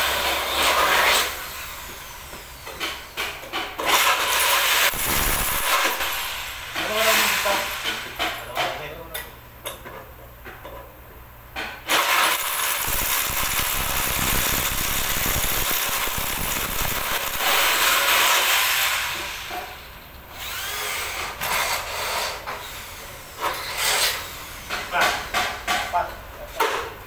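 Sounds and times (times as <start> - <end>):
electric drill boring: 0.0 - 3.2, 3.8 - 7.9, 11.9 - 19.6, 20.4 - 23.0.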